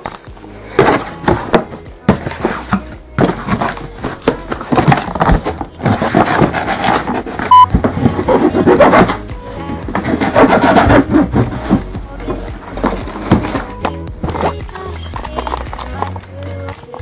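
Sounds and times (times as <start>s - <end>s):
cardboard box rustling and scraping: 0.4s - 16.2s
short high beep: 7.5s - 7.7s.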